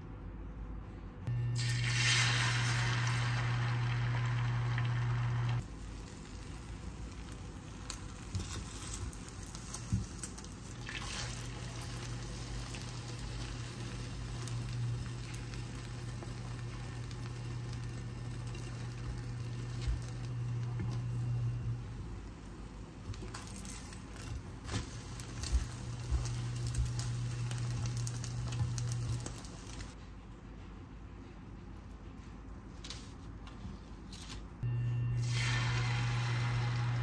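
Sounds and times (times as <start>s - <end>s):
low steady hum: 0.0s - 34.0s, 34.6s - 37.0s
egg sizzling in a pan: 1.4s - 21.8s, 23.3s - 30.0s, 35.2s - 37.0s.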